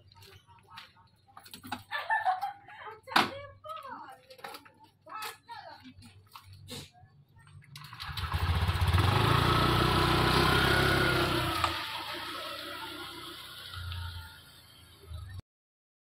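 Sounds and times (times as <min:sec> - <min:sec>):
scooter engine revving: 0:07.8 - 0:15.4.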